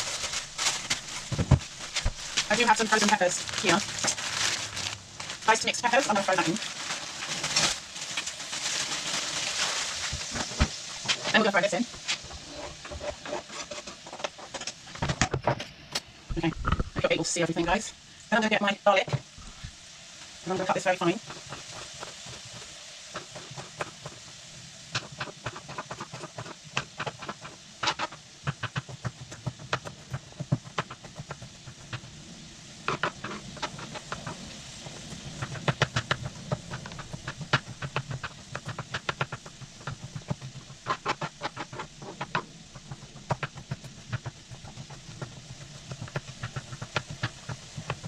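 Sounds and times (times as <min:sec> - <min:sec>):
steady sizzling hiss: 0:00.0 - 0:48.0.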